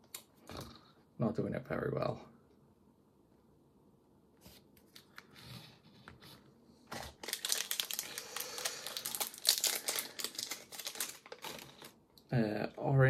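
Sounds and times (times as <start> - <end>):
plastic wrapping crinkling: 6.9 - 12.0.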